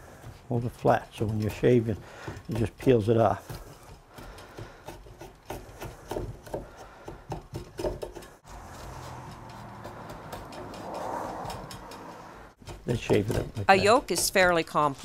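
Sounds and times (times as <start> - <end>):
draw knife scraping wood: 2.5 - 14.5.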